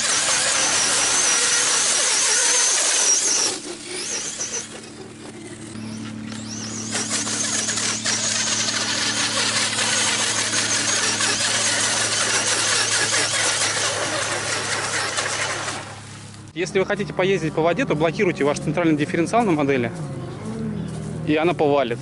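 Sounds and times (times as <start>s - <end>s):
rc car electric motor whine: 0.0s - 15.8s
steady low hum: 0.0s - 22.0s.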